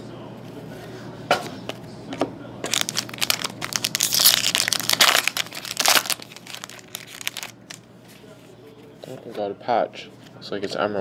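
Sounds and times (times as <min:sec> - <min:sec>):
foil wrapper crinkling and tearing: 0:02.7 - 0:07.8.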